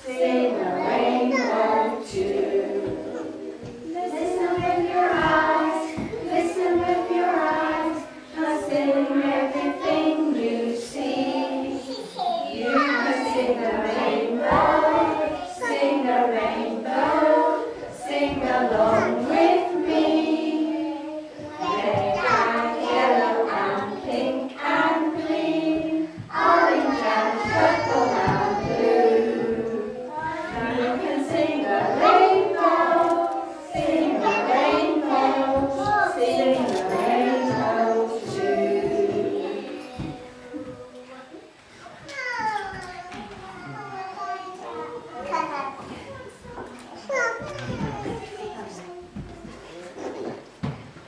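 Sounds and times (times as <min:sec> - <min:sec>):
young children singing: 0:00.0 - 0:50.8.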